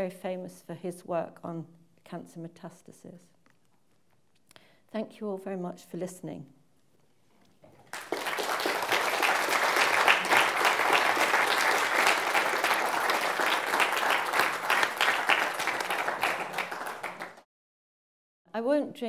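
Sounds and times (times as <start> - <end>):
audience applauding: 7.8 - 17.4.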